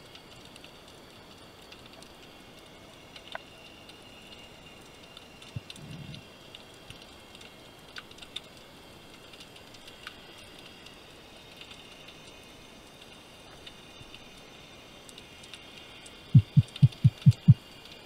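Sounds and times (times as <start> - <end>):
steady underwater hiss: 0.0 - 18.0
low rumble: 16.4 - 17.6
sharp clicks: 16.4 - 17.6.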